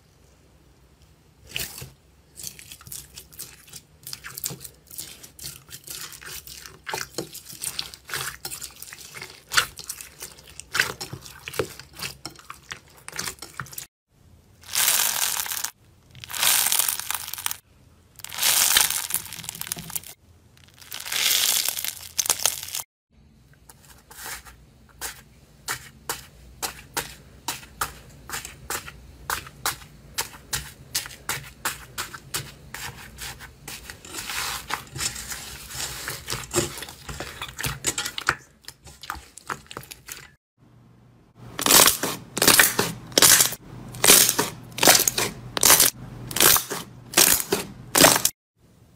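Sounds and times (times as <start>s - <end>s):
hands squishing bead-filled slime: 14.6s - 17.6s, 18.2s - 22.9s
soaked sponge squeezed: 14.6s - 17.6s, 18.2s - 22.8s.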